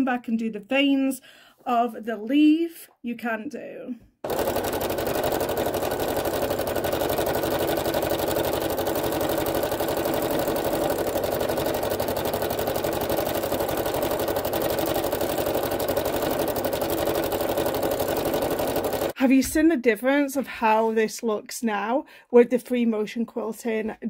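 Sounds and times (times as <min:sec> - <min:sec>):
sewing machine running: 0:04.2 - 0:19.2.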